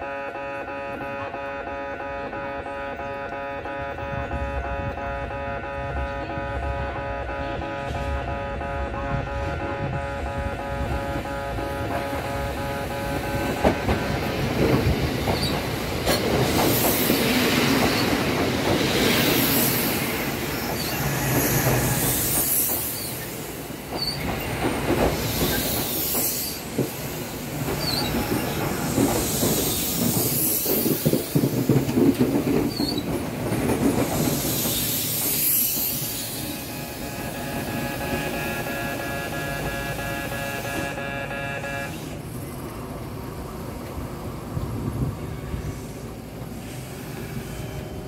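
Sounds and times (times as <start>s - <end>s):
electric train braking: 4.1s - 42.6s
wheels squealing on rails: 5.7s - 42.8s, 45.0s - 48.0s
wheels clacking over rail joints: 11.1s - 39.0s.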